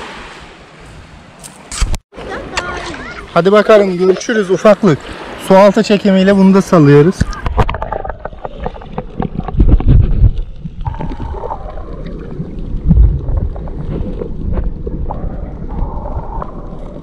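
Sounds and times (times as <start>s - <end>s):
underwater water surges: 3.7s - 17.0s.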